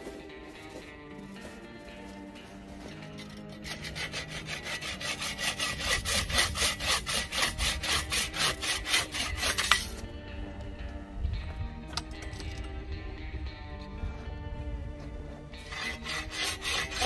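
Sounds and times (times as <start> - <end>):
bow saw cutting branch: 3.1 - 10.0, 15.6 - 17.0.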